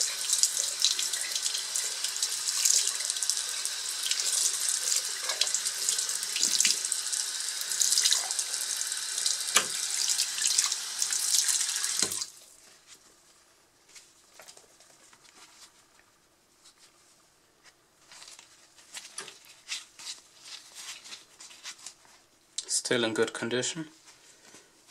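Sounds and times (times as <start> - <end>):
tap water splashing into sink: 9.5 - 10.8, 11.4 - 12.3.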